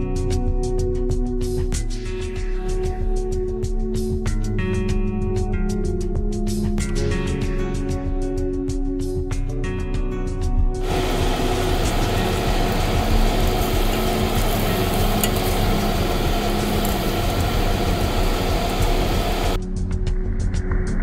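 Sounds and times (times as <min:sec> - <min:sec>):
steaks sizzling on a grill: 0:10.8 - 0:19.6.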